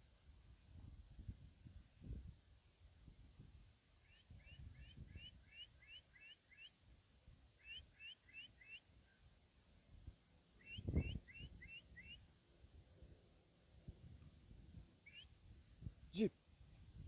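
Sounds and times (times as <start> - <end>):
bird chirping: 4.0 - 6.8, 7.6 - 9.3, 10.6 - 12.3, 15.0 - 15.4, 16.6 - 17.0.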